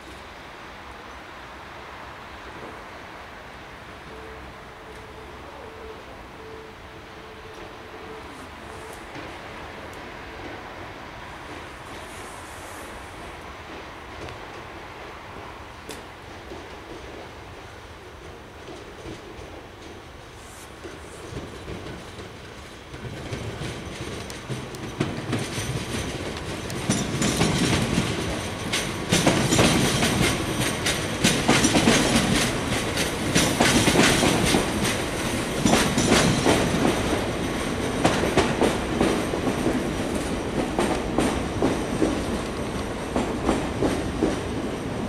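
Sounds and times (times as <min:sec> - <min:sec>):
train wheels clacking over rail joints: 0:15.8 - 0:45.0.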